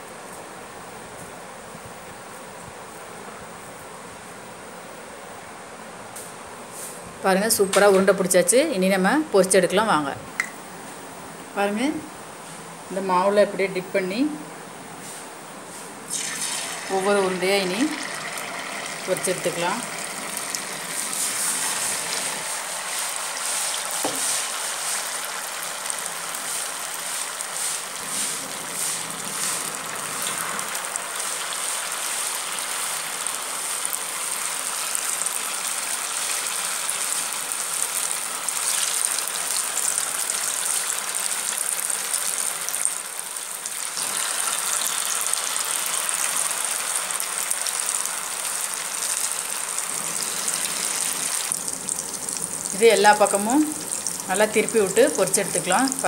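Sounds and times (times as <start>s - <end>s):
balls deep-frying in hot oil: 16.1s - 56.0s.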